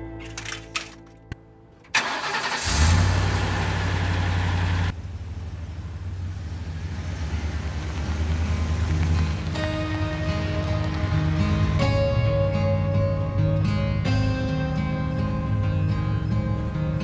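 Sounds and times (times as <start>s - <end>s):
truck engine starting: 1.8s - 14.1s
truck engine running: 1.9s - 17.0s.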